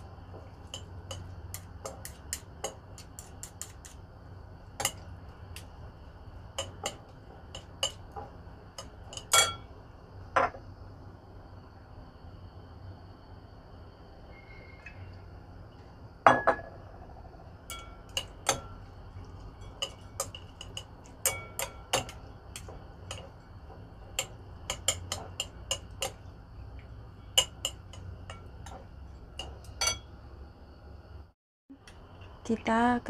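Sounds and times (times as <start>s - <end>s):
chopsticks clicking against glass bowl: 19.7s - 23.3s.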